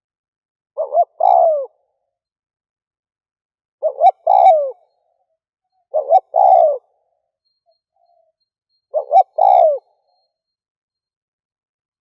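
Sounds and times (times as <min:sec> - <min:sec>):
dove cooing: 0:00.8 - 0:01.9, 0:03.8 - 0:05.2, 0:05.9 - 0:07.2, 0:08.9 - 0:10.2.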